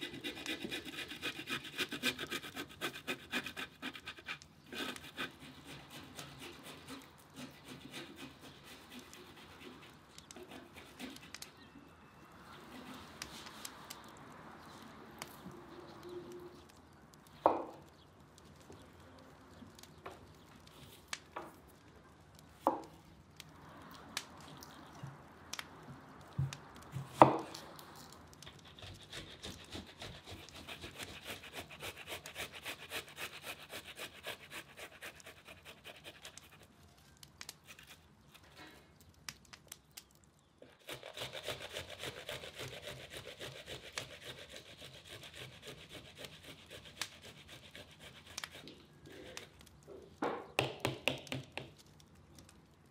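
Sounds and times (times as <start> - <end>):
tomatoes rasping on metal grater: 40.7 - 48.5.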